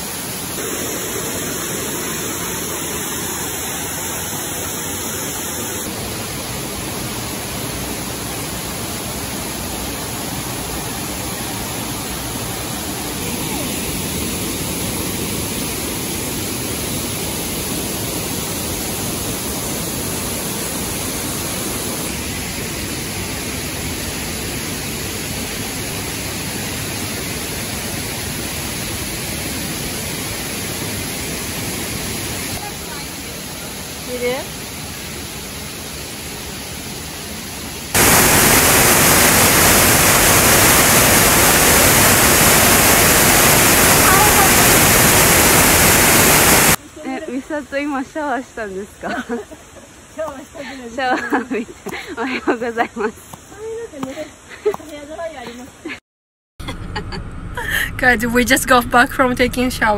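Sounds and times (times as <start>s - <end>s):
waterfall rushing: 0.0s - 47.0s.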